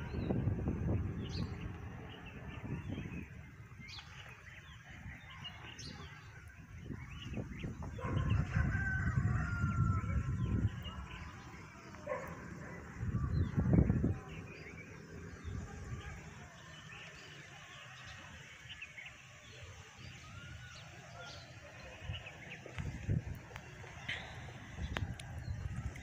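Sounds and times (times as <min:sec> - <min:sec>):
small birds chirping: 0:00.0 - 0:26.0
rooster crowing: 0:08.2 - 0:10.4.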